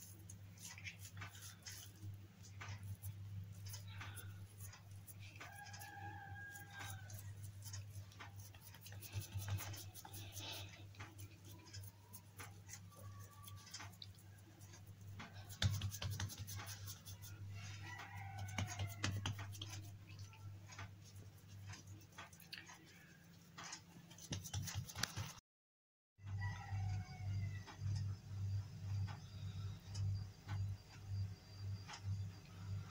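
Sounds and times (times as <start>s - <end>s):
hands patting dough: 0.0s - 25.4s
steady low hum: 27.3s - 32.9s.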